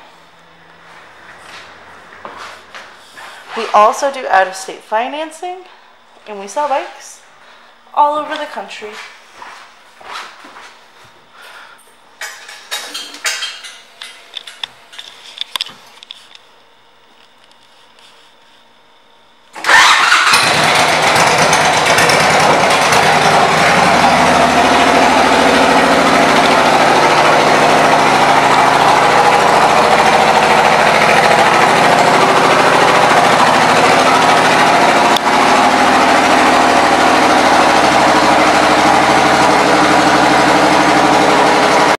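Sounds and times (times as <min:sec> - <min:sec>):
motorcycle engine starting and idling: 0:19.5 - 0:41.9.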